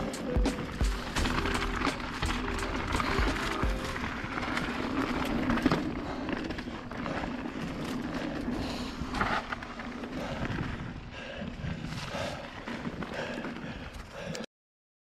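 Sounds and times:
bike rattling over bumps: 0:00.0 - 0:14.4
bike tyres on dirt and gravel: 0:00.0 - 0:14.4.

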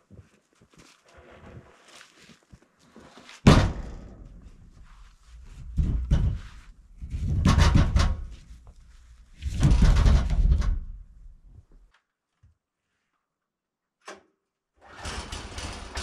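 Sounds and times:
logs rumbling and rustling: 0:00.2 - 0:11.9.

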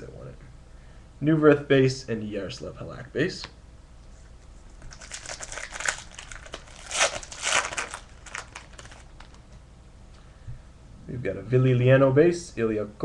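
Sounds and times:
foil wrapper crinkling: 0:04.8 - 0:09.5.

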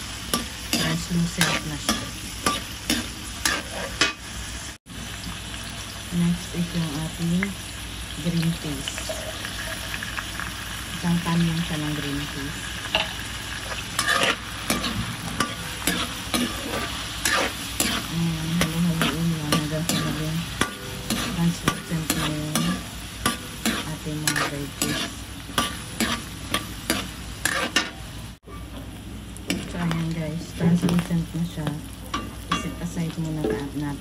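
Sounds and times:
vegetables sizzling in oil: 0:00.0 - 0:34.0.

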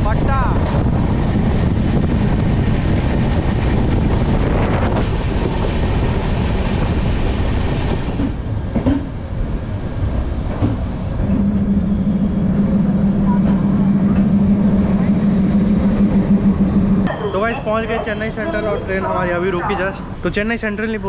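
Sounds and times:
train wheels rumbling on rail: 0:00.0 - 0:21.0
low hum: 0:11.3 - 0:17.2
train wheel squeals: 0:13.3 - 0:14.8.

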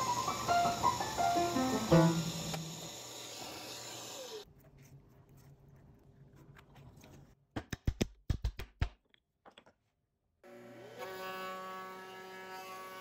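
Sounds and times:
background music with held notes: 0:00.0 - 0:02.7.

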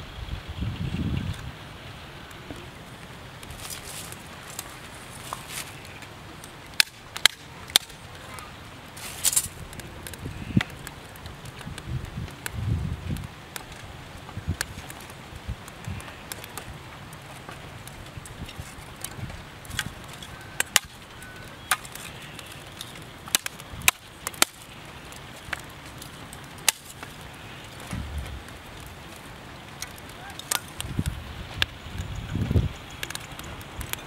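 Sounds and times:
wind rumble on microphone: 0:00.0 - 0:02.0, 0:09.4 - 0:16.8, 0:27.9 - 0:29.2, 0:30.8 - 0:34.0
small fire crackling: 0:00.0 - 0:34.0
sharp cracks and knocks: 0:03.4 - 0:08.4, 0:09.0 - 0:31.8.

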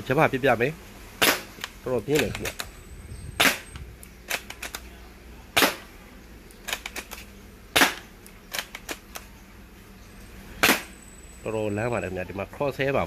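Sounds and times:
bolt clicks: 0:03.4 - 0:04.9.

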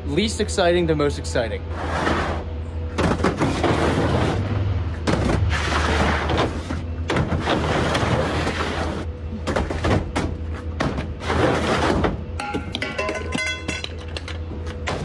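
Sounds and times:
plastic totes thudding: 0:02.9 - 0:14.0.

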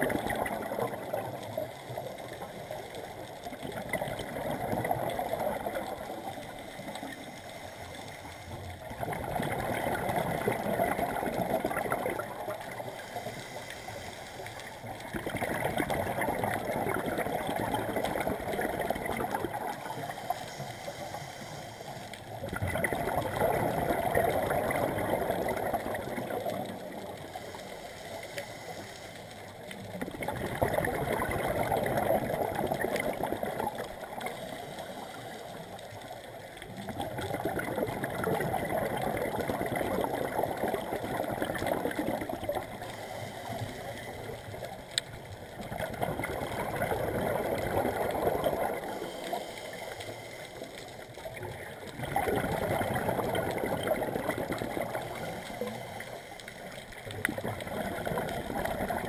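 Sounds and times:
diver inhaling underwater: 0:12.9 - 0:14.7, 0:20.1 - 0:22.2, 0:27.2 - 0:29.4, 0:42.7 - 0:44.5, 0:48.6 - 0:51.0, 0:55.0 - 0:56.8.

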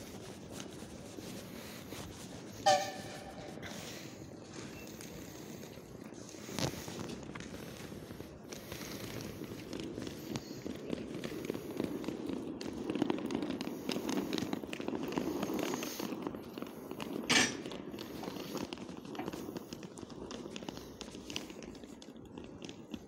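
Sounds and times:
footsteps on paving stones: 0:00.0 - 0:23.0
electric locomotive low noise: 0:02.6 - 0:06.9.

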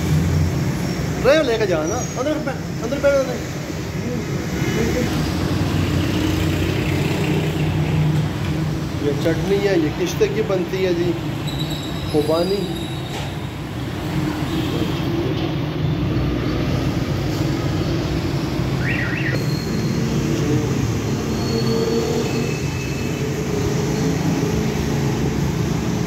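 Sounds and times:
faint high chirp: 0:18.8 - 0:20.0.

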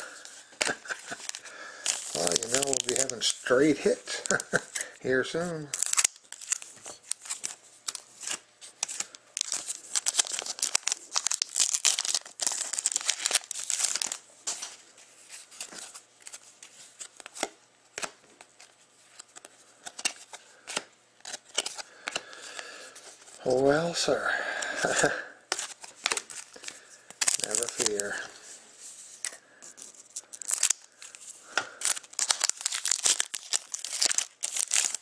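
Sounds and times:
foil wrapper crinkling: 0:00.0 - 0:14.8, 0:24.6 - 0:28.4, 0:29.2 - 0:35.0
cards clicking and rustling: 0:00.2 - 0:14.8, 0:15.5 - 0:23.4, 0:24.6 - 0:28.4, 0:29.1 - 0:35.0.

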